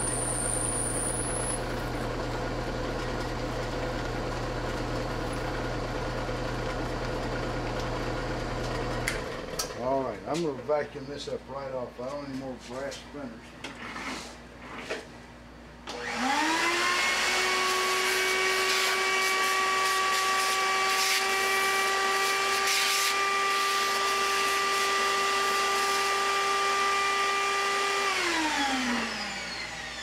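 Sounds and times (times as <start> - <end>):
vacuum cleaner motor whine: 0.0 - 9.8, 15.8 - 30.0
vacuum nozzle sucking metal chips: 17.1 - 26.8.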